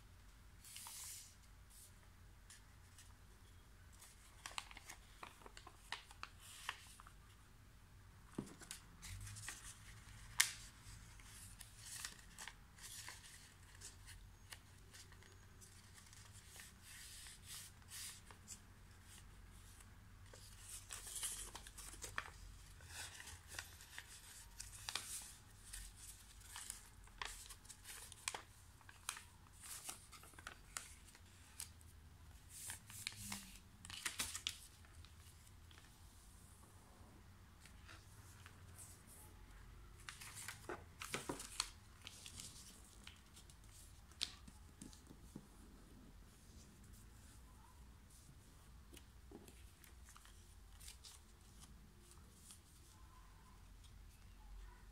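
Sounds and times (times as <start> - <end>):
paper rustling and crackling: 4.0 - 7.2, 8.3 - 31.8, 32.4 - 35.9, 40.0 - 45.5.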